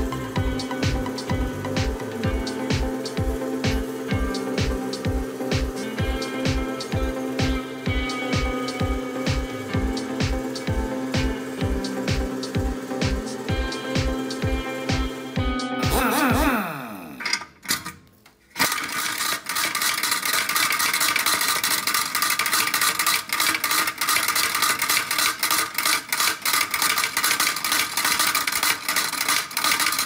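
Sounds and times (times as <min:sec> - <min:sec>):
background music: 0:00.0 - 0:17.2
machine hammer metallic clatter: 0:18.6 - 0:30.0.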